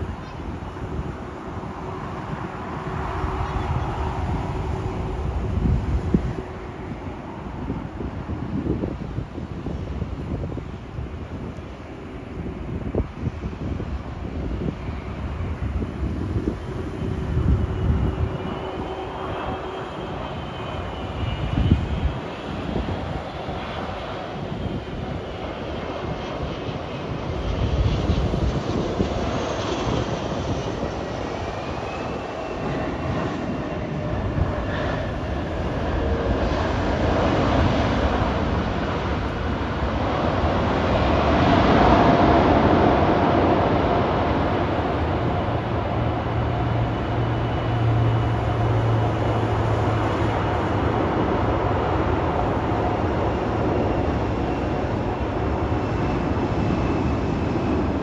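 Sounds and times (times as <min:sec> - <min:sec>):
jet engine roar: 0:00.0 - 0:58.0.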